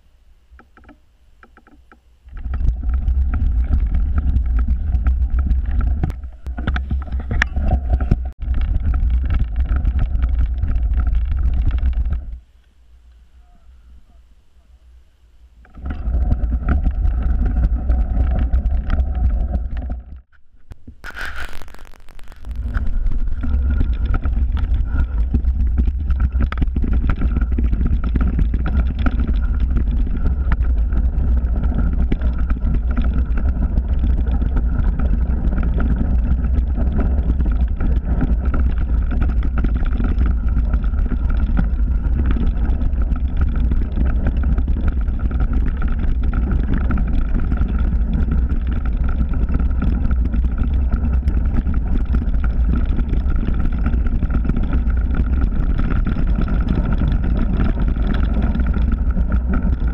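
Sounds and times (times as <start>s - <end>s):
bike riding rumble: 0.0s - 59.9s
wind buffeting microphone: 22.5s - 59.9s.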